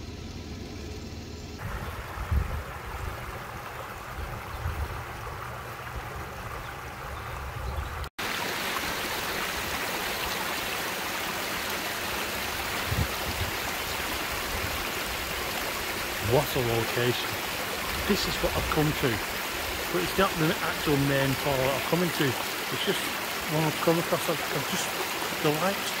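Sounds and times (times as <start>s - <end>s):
stream running over stones: 1.6s - 26.0s
water spilling over weir: 8.2s - 26.0s.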